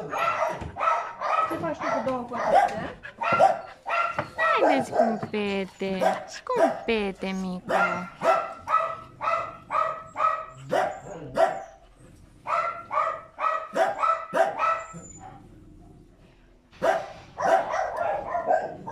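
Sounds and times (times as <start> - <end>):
dog barking: 0.0 - 5.3, 6.0 - 6.9, 7.6 - 11.8, 12.4 - 15.3, 16.8 - 18.9.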